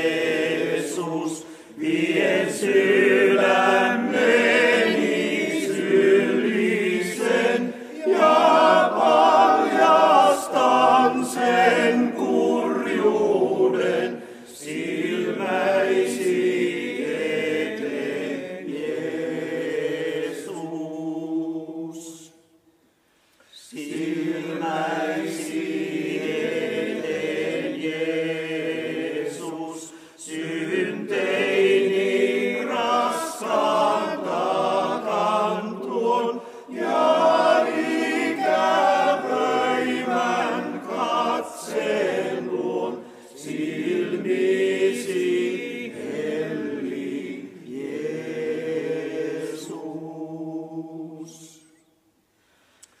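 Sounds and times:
men's choir singing unaccompanied: 0.0s - 22.4s, 23.6s - 51.7s.

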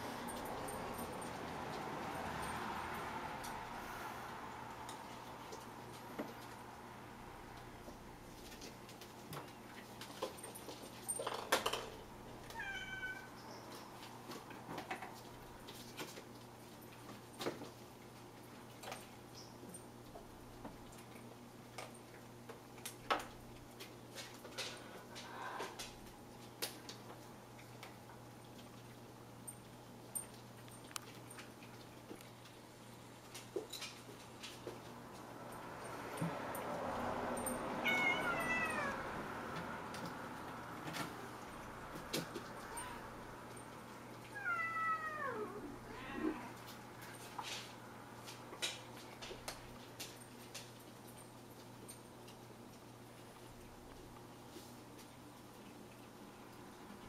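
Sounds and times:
kitten meowing: 37.8s - 39.0s, 44.4s - 46.5s.

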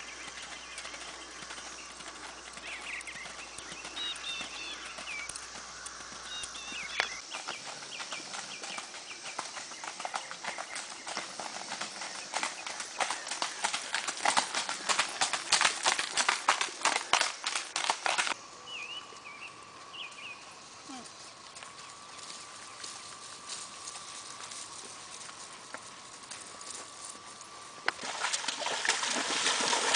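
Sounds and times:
birds chirping: 0.0s - 15.4s, 18.5s - 22.9s
horse hooves on gravel: 0.0s - 18.4s, 19.5s - 29.9s.

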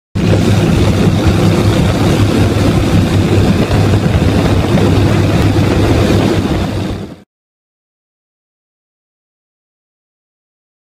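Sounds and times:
boat motor droning: 0.2s - 7.2s.

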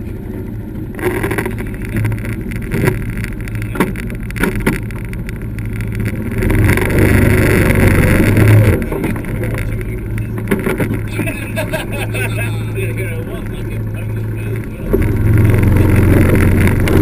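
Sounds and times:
buggy engine droning: 0.0s - 17.0s.

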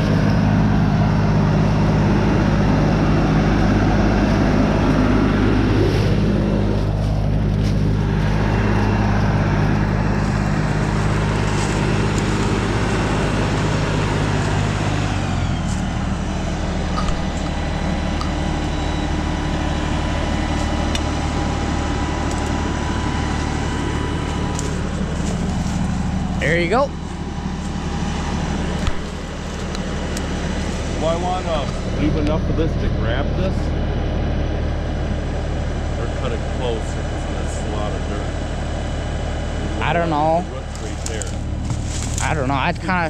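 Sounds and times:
tractor diesel engine running: 0.0s - 43.0s.

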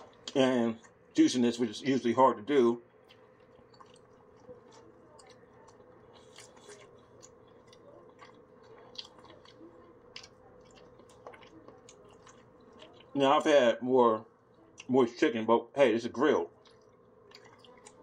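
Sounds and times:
chewing with wet mouth clicks: 0.0s - 1.2s, 2.8s - 13.5s, 14.4s - 14.9s, 16.5s - 18.0s
low steady hum: 0.0s - 18.0s.

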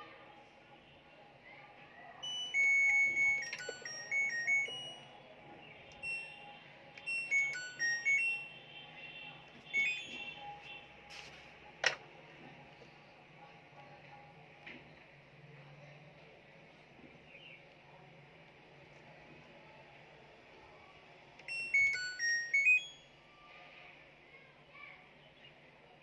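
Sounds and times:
button beeps: 2.2s - 5.1s, 6.0s - 6.4s, 7.0s - 8.5s, 9.7s - 10.4s, 21.5s - 23.0s
electronic chime melody of beeps: 2.2s - 5.2s, 6.0s - 8.6s, 9.7s - 10.4s, 21.5s - 23.2s.

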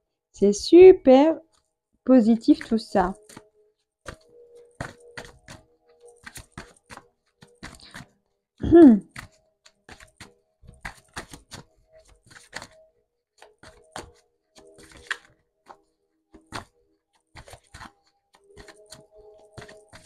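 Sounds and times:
cards being shuffled: 2.4s - 3.5s, 4.1s - 8.1s, 9.0s - 12.8s, 13.4s - 20.0s.

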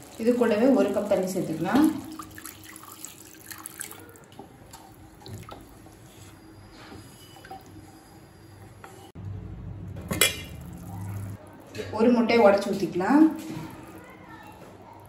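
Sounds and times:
water pouring into thick sauce: 0.0s - 5.8s
spatula stirring and scraping: 4.4s - 9.2s
low hum: 9.2s - 11.5s.

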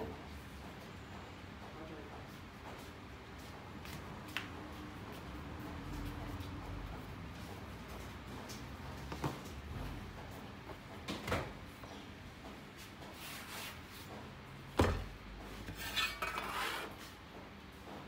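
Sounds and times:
dough thumping on board: 14.7s - 15.2s.

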